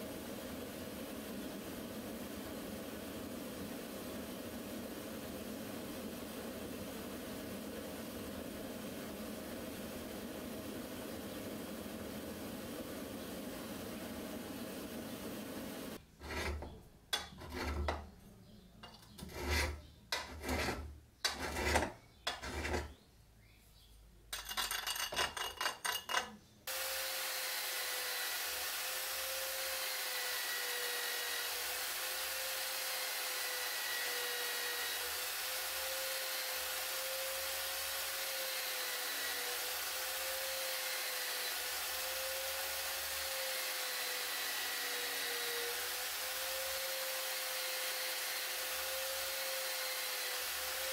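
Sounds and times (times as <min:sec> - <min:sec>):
knife scraping glass jar: 0:16.2 - 0:18.0, 0:18.8 - 0:22.9.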